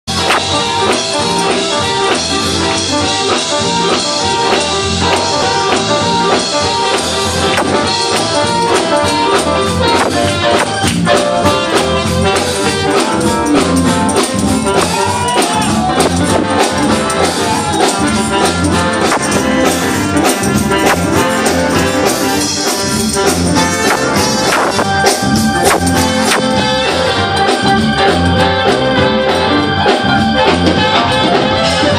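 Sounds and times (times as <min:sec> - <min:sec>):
gospel band playing: 0:00.1 - 0:31.9
tambourine: 0:11.4 - 0:26.6.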